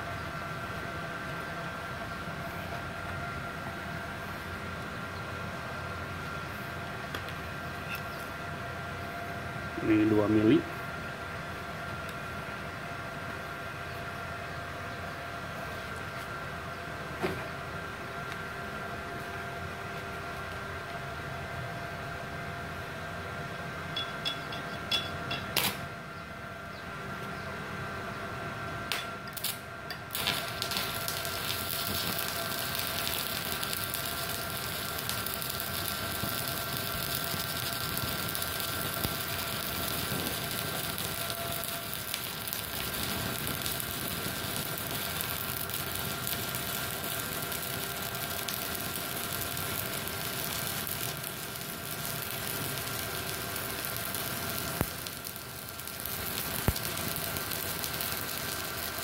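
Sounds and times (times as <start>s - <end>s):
welder whine: 0.0s - 59.0s
welding arc crackling and hissing: 28.9s - 59.0s
welding rod scratching: 29.4s - 47.8s.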